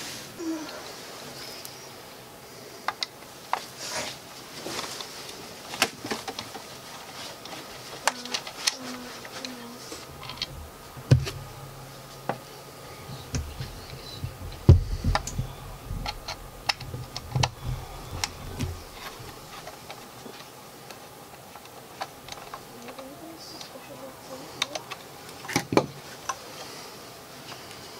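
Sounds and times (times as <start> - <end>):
dull thumps of rifle handling: 10.3 - 11.5, 13.3 - 19.5.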